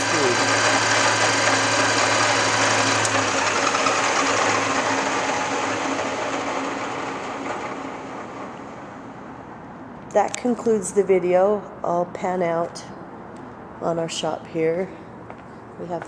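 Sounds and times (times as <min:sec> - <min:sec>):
lathe spindle whirring: 0:00.0 - 0:09.0.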